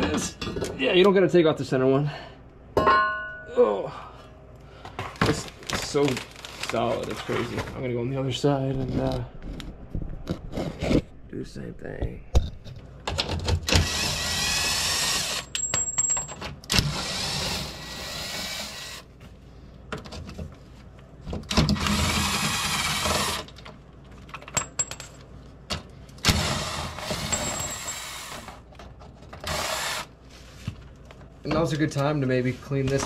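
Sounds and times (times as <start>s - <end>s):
power drill running: 13.7s - 15.5s, 16.8s - 19.0s, 21.8s - 23.5s, 29.5s - 30.1s.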